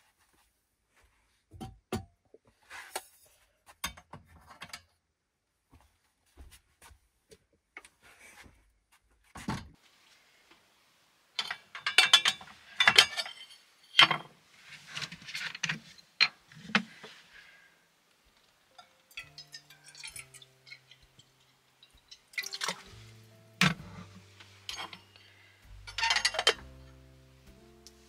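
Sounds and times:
kettle lid clinking and rattling: 11.4 - 14.3, 24.7 - 25.0, 25.9 - 26.6
water pouring into kettle: 21.9 - 22.9.

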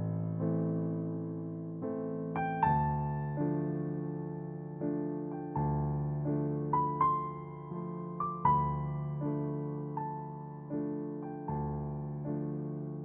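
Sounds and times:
slow solo piano piece: 0.0 - 13.0.

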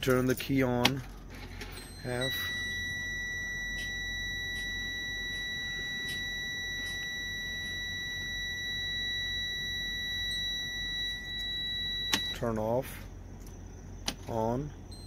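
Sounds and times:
dashboard warning buzzer: 1.6 - 12.6.

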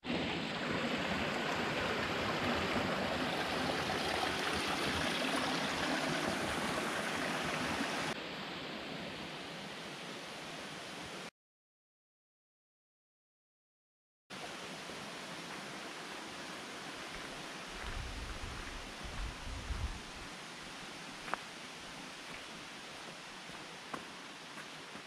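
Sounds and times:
stream water rushing: 0.0 - 11.3, 14.4 - 19.3, 20.0 - 25.0.

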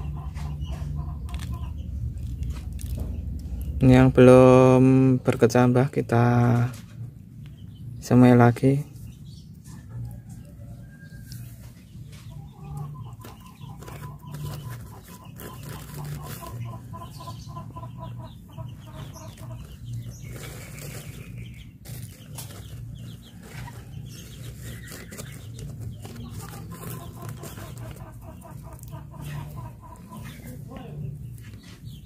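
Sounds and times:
chickens clucking: 0.0 - 4.1, 4.8 - 32.0
rustling: 13.3 - 16.8, 19.0 - 28.2.

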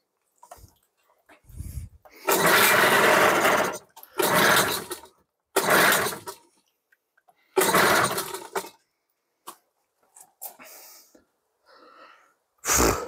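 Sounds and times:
outboard engine failing to start: 2.2 - 6.4, 7.6 - 8.8.

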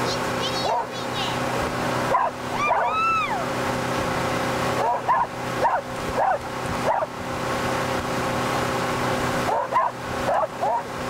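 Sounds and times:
boat motor hum: 0.0 - 11.0
boat wake rushing: 0.0 - 11.0
dog yipping: 2.1 - 3.1, 9.5 - 10.8.

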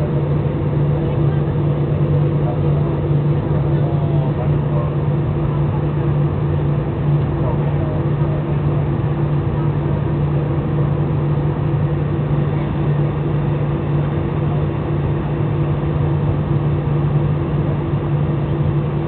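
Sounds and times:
airliner cabin engine drone: 0.0 - 19.0.

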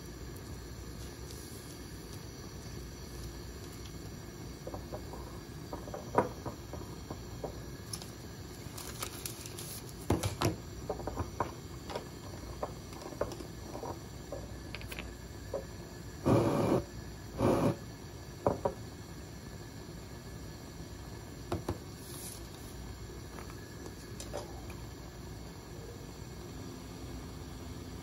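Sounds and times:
background hiss: 0.0 - 28.0
plastic sleeve rustling: 8.6 - 10.0.

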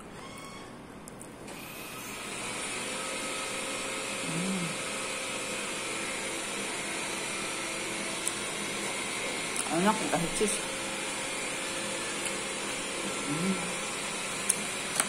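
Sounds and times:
short low hum: 4.2 - 4.9.

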